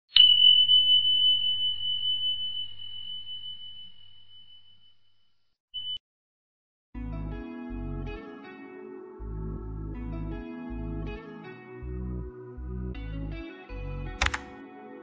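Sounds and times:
high ringing tone: 0.1 - 6.0.

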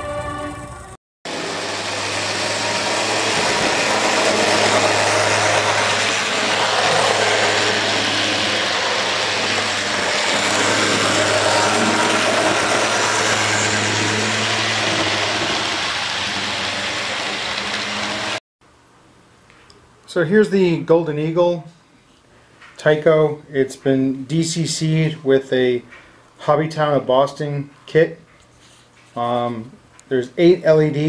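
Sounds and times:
model train wheels rumbling: 0.6 - 18.4.

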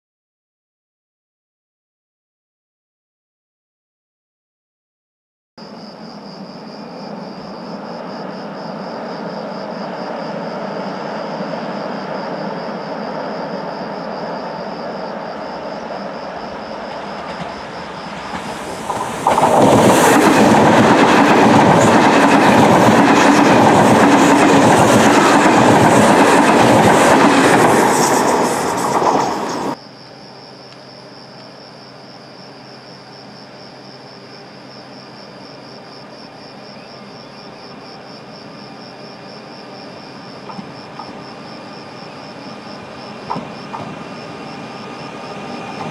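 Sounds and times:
high-speed train passing: 6.0 - 29.8, 32.0 - 45.9
train wheels clattering: 16.5 - 29.8, 43.2 - 44.4.

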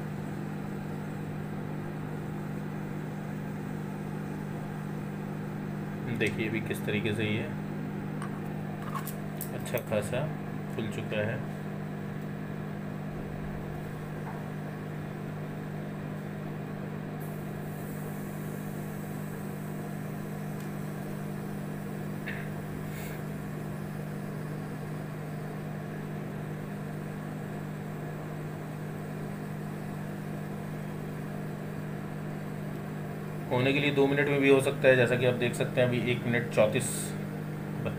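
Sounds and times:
microwave oven humming: 0.0 - 37.9.

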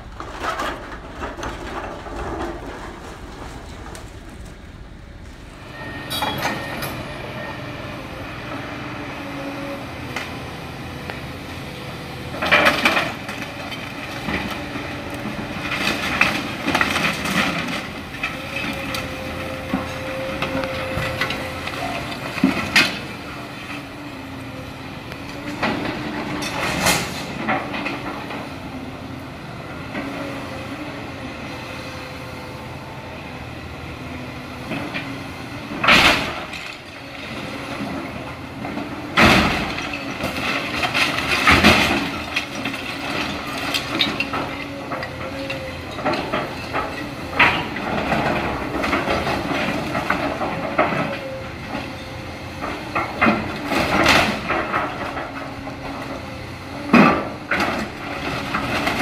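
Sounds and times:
timber and debris crashing: 0.0 - 5.0, 38.6 - 51.1
excavator engine and hydraulics: 0.0 - 59.0.

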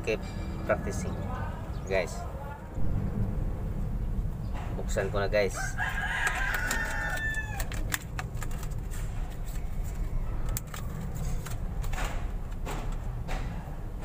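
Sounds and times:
rooster crowing: 5.5 - 7.8
blister packaging crackling: 5.8 - 13.1.

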